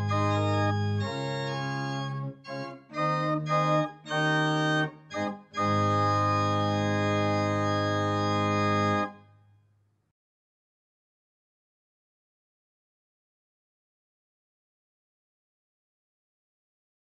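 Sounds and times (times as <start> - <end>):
electronic organ chords: 0.0 - 9.2.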